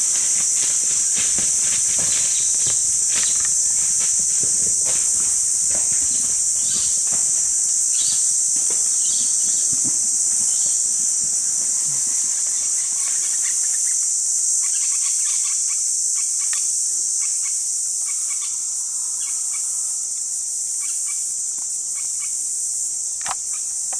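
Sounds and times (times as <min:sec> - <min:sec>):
soft crackles and rustles: 0:00.0 - 0:10.1
insects chorus: 0:00.0 - 0:23.9.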